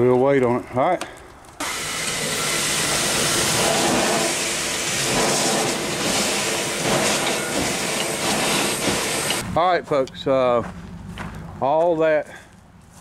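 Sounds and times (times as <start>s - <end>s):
steam engine hissing: 1.6s - 9.4s.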